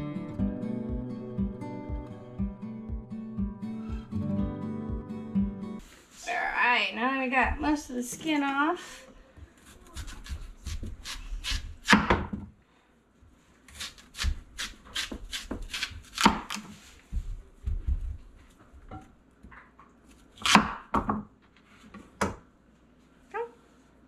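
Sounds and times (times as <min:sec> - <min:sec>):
knife cutting vegetable on board: 0:09.6 - 0:12.4, 0:13.7 - 0:17.2, 0:20.1 - 0:21.1.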